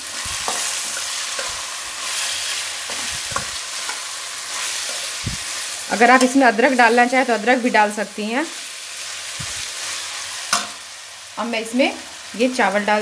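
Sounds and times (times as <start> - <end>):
spatula scraping and knocking pan: 0.0 - 6.4
vegetables sizzling in hot oil: 0.0 - 13.0.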